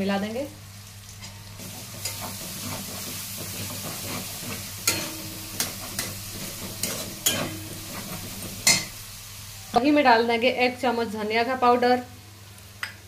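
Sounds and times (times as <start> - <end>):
onions sizzling in a pan: 0.0 - 12.8
spatula stirring and scraping: 1.2 - 8.9.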